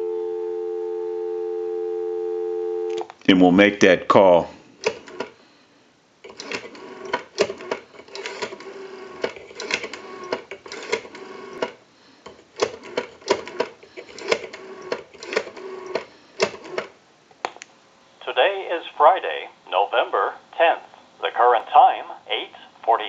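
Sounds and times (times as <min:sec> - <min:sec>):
telephone rotary dial clicking: 0:04.8 - 0:05.4, 0:06.3 - 0:16.9.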